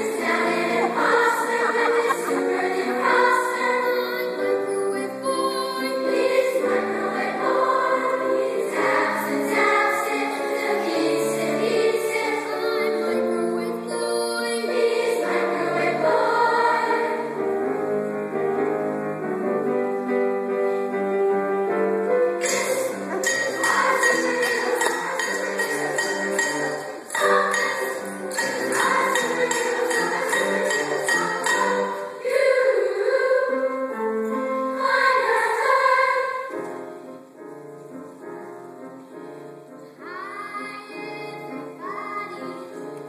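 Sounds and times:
youth chorus singing: 0.0 - 17.4, 22.4 - 34.0, 34.6 - 36.6
high rattling percussion: 22.4 - 32.1.

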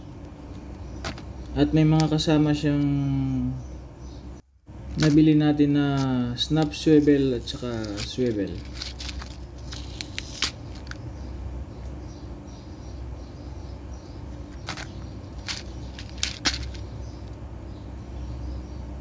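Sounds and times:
steady low hum: 0.0 - 19.0
plastic packaging clicks and crinkles: 7.4 - 11.0, 14.6 - 16.8.

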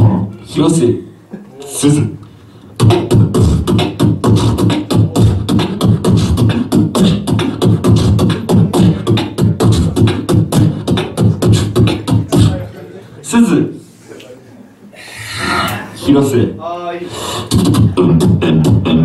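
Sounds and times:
amplified beatboxing: 0.0 - 0.5, 2.1 - 12.8, 15.1 - 16.1, 17.0 - 19.0.

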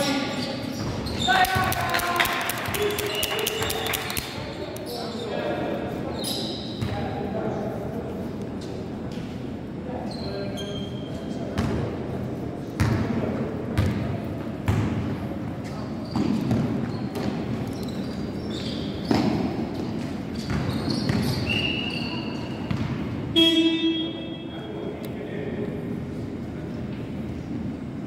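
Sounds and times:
shoe squeaks: 0.0 - 1.6, 2.8 - 5.4, 6.0 - 6.9, 10.0 - 11.6, 15.6 - 22.8, 23.4 - 24.8
basketball bouncing on gym floor: 12.8 - 13.1, 13.8 - 15.2, 20.4 - 21.6, 22.6 - 23.8.

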